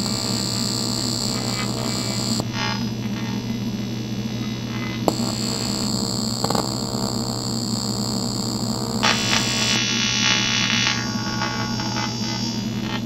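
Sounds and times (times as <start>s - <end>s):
welding hiss: 0.0s - 2.4s, 5.1s - 13.0s
welding arc buzzing: 0.0s - 2.8s, 4.7s - 13.0s.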